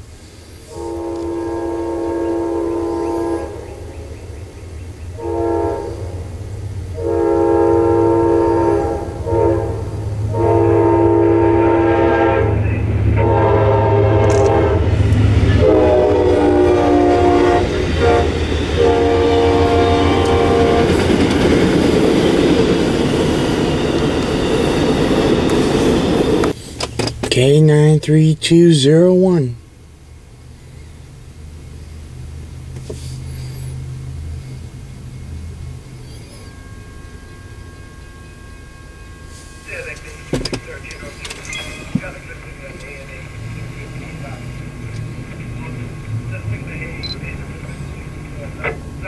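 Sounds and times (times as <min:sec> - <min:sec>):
diesel engine rumble: 0:00.0 - 0:49.0
train horn blasts: 0:00.6 - 0:03.8, 0:05.1 - 0:21.7, 0:35.7 - 0:41.1
train wheels clattering: 0:39.2 - 0:46.3.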